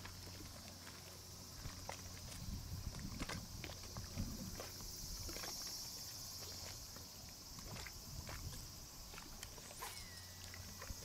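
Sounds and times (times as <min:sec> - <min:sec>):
insects buzzing: 0:00.0 - 0:11.0
wind rumble on microphone: 0:01.5 - 0:05.4, 0:07.5 - 0:09.2.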